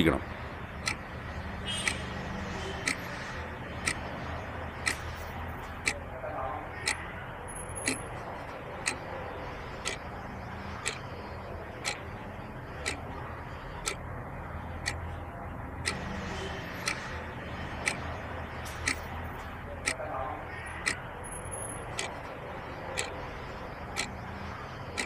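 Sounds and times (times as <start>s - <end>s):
clock ticking: 0.7s - 1.1s, 1.7s - 2.1s, 2.8s - 4.1s, 4.8s - 6.0s, 6.8s - 8.1s, 8.8s - 9.0s, 9.8s - 10.1s, 10.8s - 11.0s, 11.7s - 12.1s, 12.7s - 13.2s, 13.8s - 14.0s, 14.8s - 15.1s, 15.8s - 16.0s, 16.8s - 17.2s, 17.8s - 20.0s, 20.8s - 23.2s, 23.9s - 24.2s.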